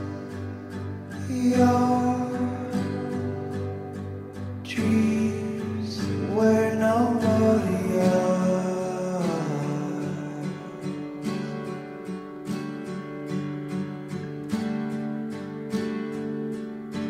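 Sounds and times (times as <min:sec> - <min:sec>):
person singing: 0:00.0 - 0:03.8, 0:04.5 - 0:11.2
acoustic guitar music: 0:00.0 - 0:17.0.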